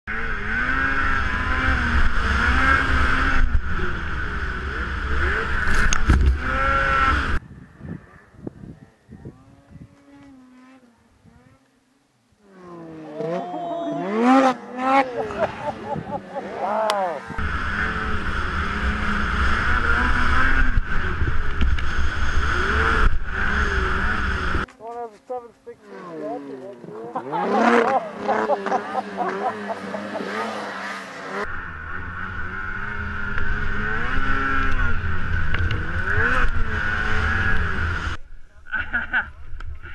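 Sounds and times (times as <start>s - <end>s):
snowmobile engine revving: 0.1s - 11.7s, 12.3s - 24.7s, 25.3s - 39.9s
wind buffeting microphone: 7.4s - 10.1s.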